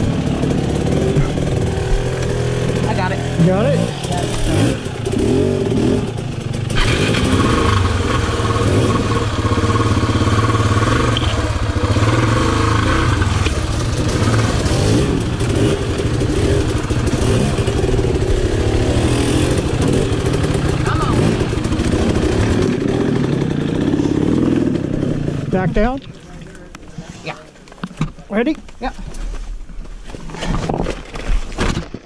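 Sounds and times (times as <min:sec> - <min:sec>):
motorcycle engine at low revs: 0:00.0 - 0:27.0.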